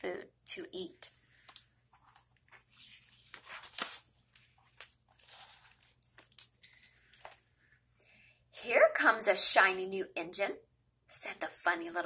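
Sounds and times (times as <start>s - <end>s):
paper page turning: 1.4s - 6.5s.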